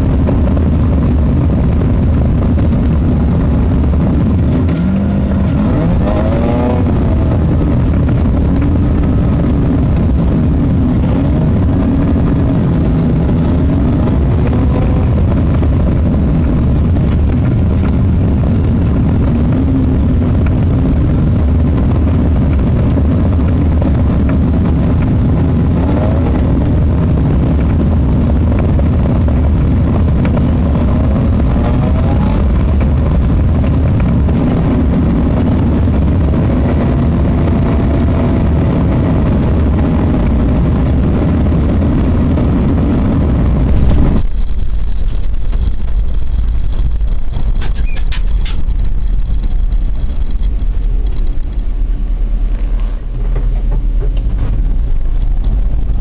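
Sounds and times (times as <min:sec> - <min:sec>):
engine pitch rising and falling: 0:00.0 - 0:44.3
road rumble in vehicle cabin: 0:00.0 - 0:56.0.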